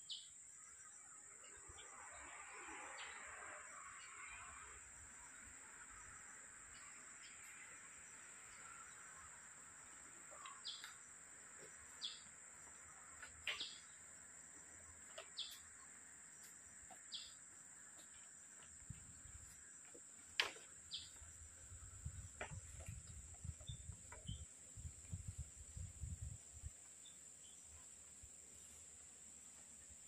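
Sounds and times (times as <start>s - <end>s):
bird chirping: 0.0s - 3.2s, 5.2s - 17.4s, 20.4s - 24.9s
high insect drone: 0.1s - 30.0s.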